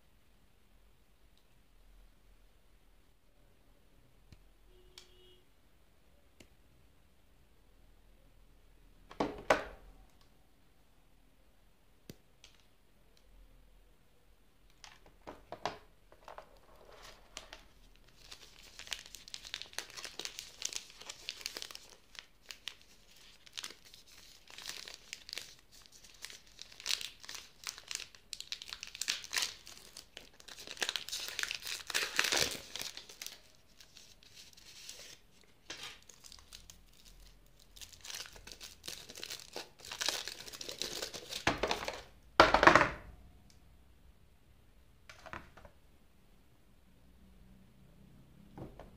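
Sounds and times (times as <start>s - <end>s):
wrapper crinkling and tearing: 16.6s - 42.1s.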